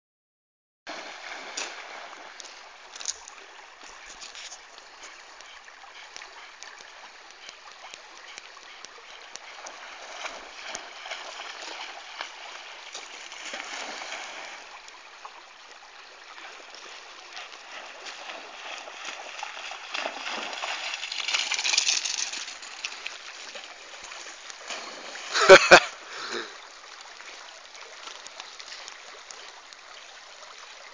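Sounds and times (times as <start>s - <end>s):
river rushing over gravel: 17.0s - 26.6s
dog splashing in water: 17.6s - 23.2s.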